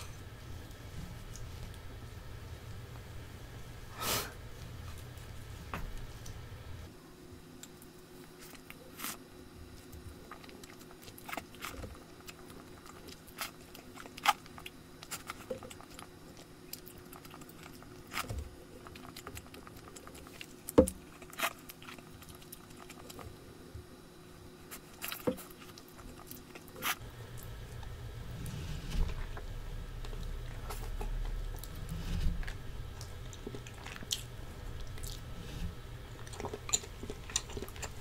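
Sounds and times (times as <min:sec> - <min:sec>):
soft chewing: 0:00.0 - 0:38.0
low hum: 0:27.0 - 0:38.0.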